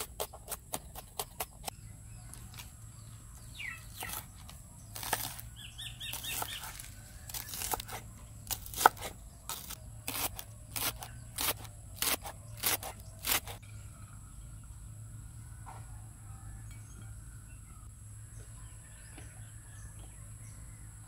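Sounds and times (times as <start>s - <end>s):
knife chopping on wooden board: 0.0s - 1.7s, 6.1s - 13.6s.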